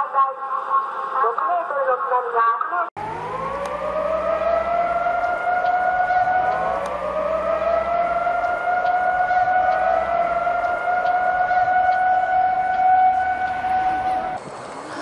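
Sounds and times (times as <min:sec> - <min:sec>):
warning siren wailing: 0:03.0 - 0:14.4.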